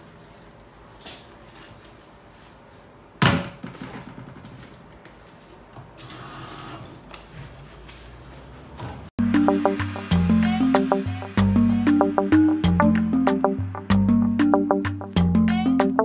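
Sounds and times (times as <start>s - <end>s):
music: 9.2s - 16.0s.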